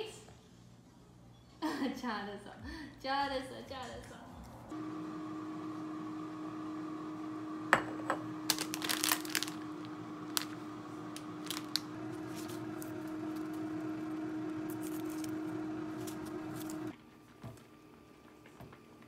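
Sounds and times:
plastic packet crinkling: 0:08.4 - 0:13.6, 0:14.7 - 0:15.4.

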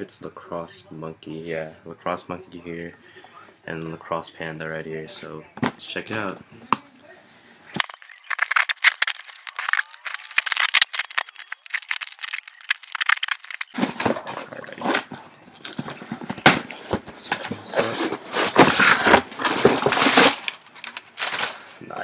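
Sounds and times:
sharp clicks and scrapes: 0:07.8 - 0:21.6
cardboard box and plastic rustling: 0:07.8 - 0:21.7.

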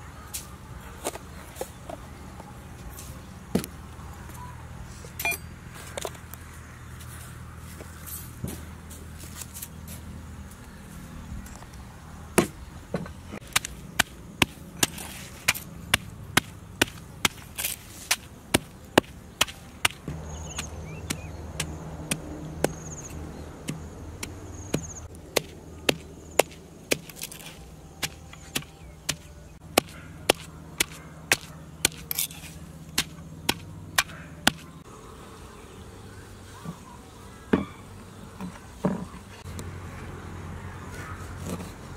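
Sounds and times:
wooden pestle pounding in mortar: 0:18.5 - 0:22.8, 0:28.0 - 0:32.0.

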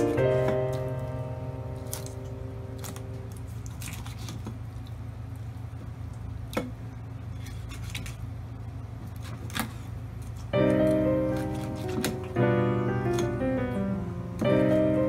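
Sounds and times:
background music: 0:00.0 - 0:02.3
steady low hum: 0:00.0 - 0:15.0.

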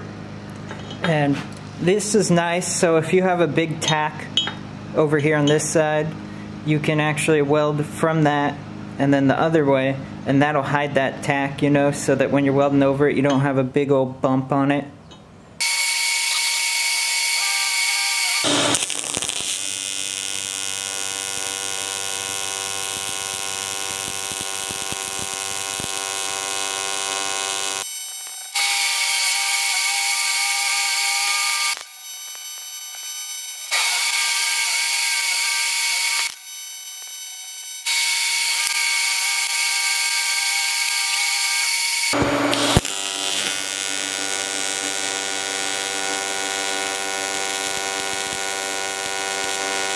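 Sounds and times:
welding arc buzzing: 0:15.6 - 0:49.9
welding arc crackles: 0:15.6 - 0:49.9.

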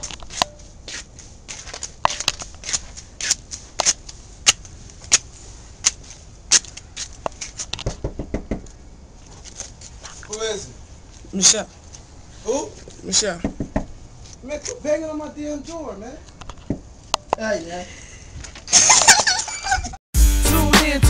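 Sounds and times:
footsteps on hard steps: 0:00.0 - 0:12.1
banging on a door: 0:07.8 - 0:08.7, 0:13.4 - 0:13.9.

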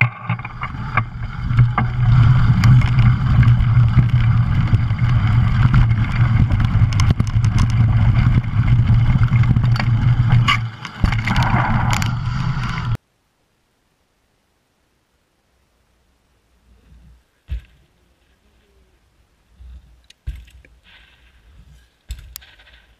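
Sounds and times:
bike rattles and clicks: 0:00.0 - 0:13.0, 0:19.6 - 0:22.9
wind buffeting microphone: 0:00.0 - 0:13.0.

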